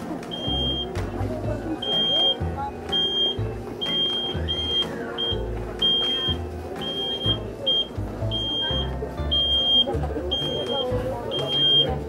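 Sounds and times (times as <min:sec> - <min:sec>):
reverse warning beeper: 0:01.8 - 0:12.0.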